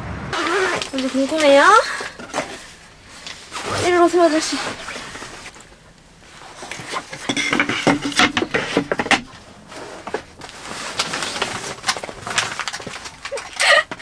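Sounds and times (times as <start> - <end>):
bag rustling: 0.4 - 5.7
objects clattering and clinking: 6.6 - 9.4, 10.0 - 14.0.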